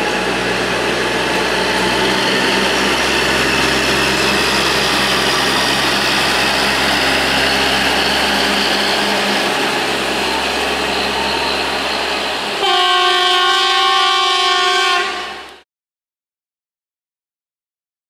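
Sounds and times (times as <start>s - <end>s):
diesel engine running: 0.0s - 12.6s
loud multi-tone horn: 8.8s - 15.6s.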